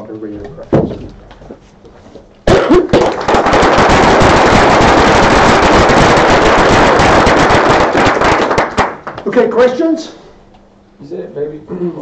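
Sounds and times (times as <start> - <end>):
audience applauding: 2.5 - 9.6.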